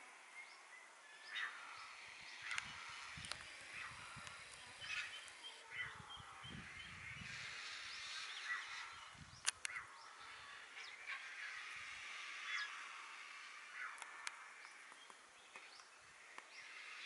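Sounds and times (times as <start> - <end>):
bird calls and chirps: 0.0 - 17.0
faint open-air hiss: 0.0 - 17.0
sharp clicks: 9.4 - 9.8.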